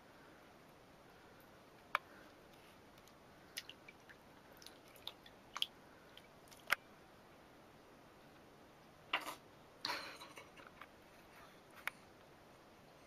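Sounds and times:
faint water splashes and drips: 0:03.0 - 0:06.8.

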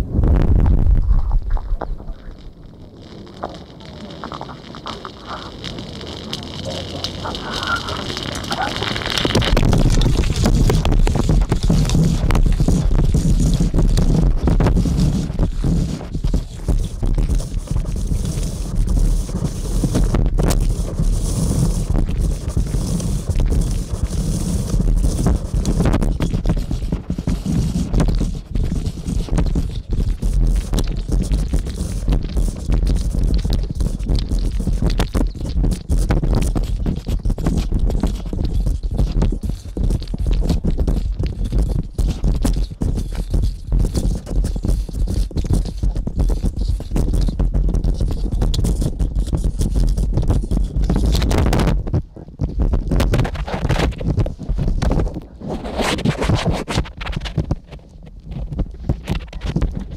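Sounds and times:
heavy low rumble: 0:00.0 - 0:18.4
microphone cable rubbing rumble: 0:00.0 - 0:59.9
scraping and crackling clicks: 0:00.6 - 0:59.9.

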